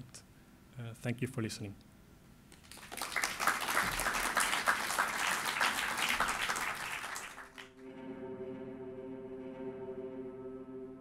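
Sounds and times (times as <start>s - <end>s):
audience applauding: 2.6s - 7.7s.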